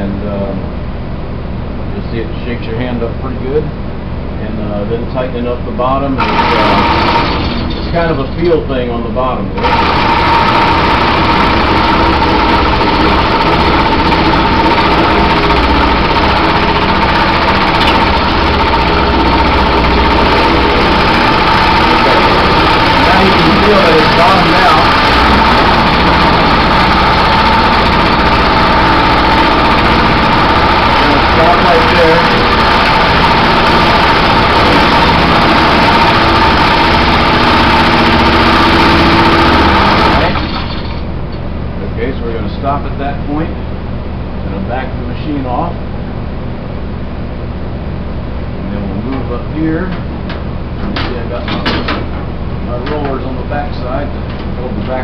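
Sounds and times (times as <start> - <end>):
power hammer pounding sheet steel: 6.2 - 7.7, 9.6 - 40.7.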